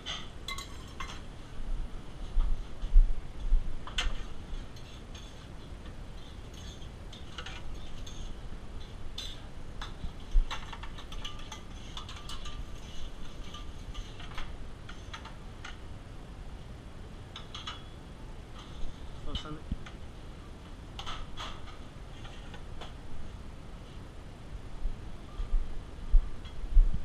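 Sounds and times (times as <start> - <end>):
metal utensils clicking and tapping: 0.0 - 1.2, 3.9 - 15.8, 17.3 - 17.9.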